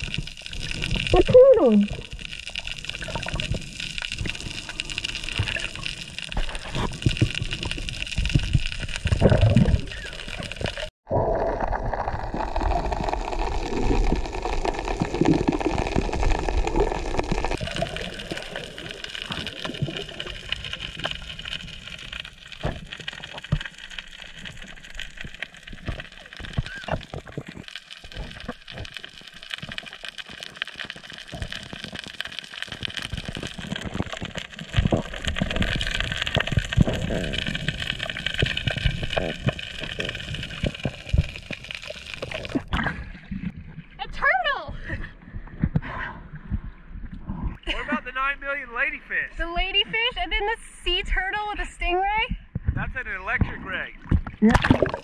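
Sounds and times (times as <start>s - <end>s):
water gurgling underwater: 0.0s - 47.7s, 53.4s - 55.0s.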